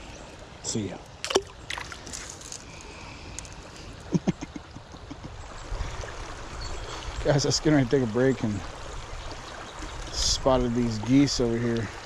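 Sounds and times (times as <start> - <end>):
creek water gurgling over gravel: 0.1 - 12.0
small knocks and splashes: 1.1 - 2.8.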